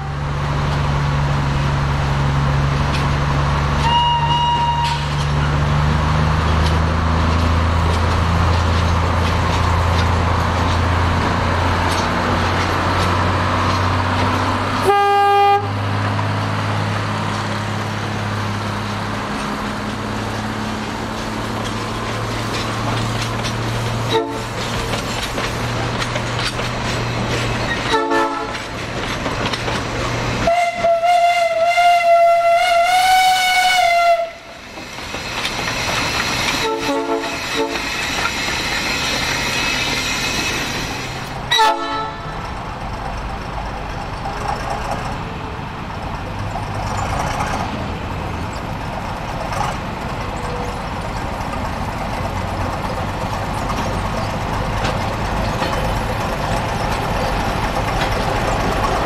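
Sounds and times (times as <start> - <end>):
diesel locomotive engine: 0.0 - 59.0
train running noise: 0.0 - 59.0
steam locomotive whistle: 3.8 - 5.2, 14.8 - 15.7, 24.1 - 24.5, 27.9 - 28.6, 30.4 - 34.6, 36.5 - 38.3, 41.5 - 42.3.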